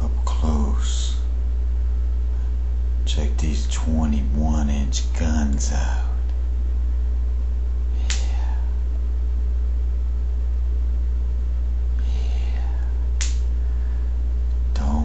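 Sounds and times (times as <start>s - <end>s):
steady low hum: 0.0s - 15.0s
short sharp clicks: 13.2s - 13.5s.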